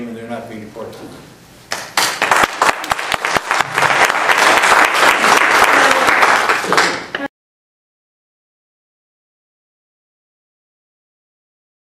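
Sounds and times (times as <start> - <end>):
audience applauding: 1.7 - 7.3.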